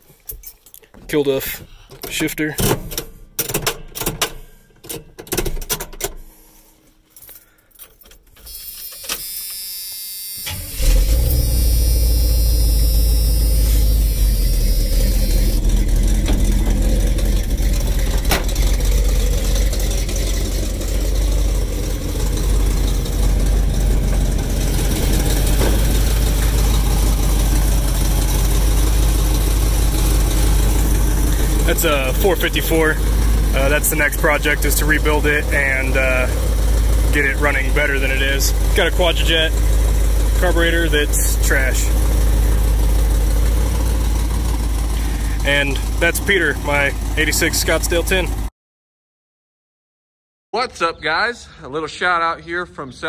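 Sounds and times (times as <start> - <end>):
starter cranking: 10.5 - 48.1
car engine running: 10.5 - 48.5.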